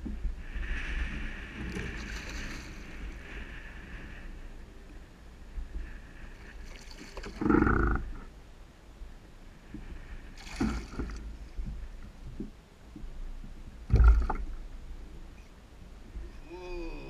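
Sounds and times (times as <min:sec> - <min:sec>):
wind rumble on microphone: 0:00.0 - 0:17.0
fish splashing in water: 0:10.4 - 0:11.2.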